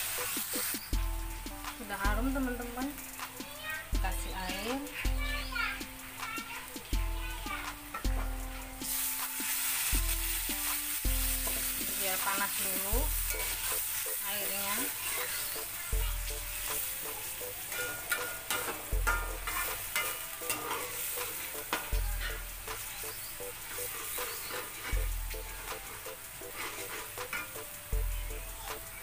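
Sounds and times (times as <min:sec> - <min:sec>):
faint background music: 0:00.0 - 0:29.0
liquid sizzling: 0:00.0 - 0:29.0
spatula scraping in a metal wok: 0:07.9 - 0:15.8, 0:16.4 - 0:27.7.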